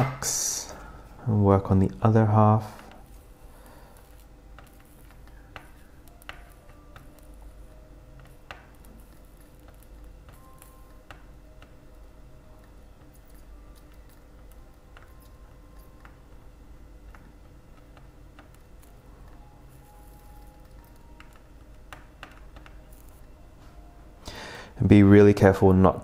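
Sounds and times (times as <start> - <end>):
low steady hum: 0.0 - 26.0.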